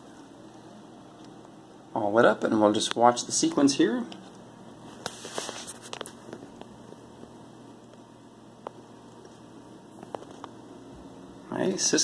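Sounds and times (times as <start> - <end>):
faint hum and hiss: 0.0 - 12.0.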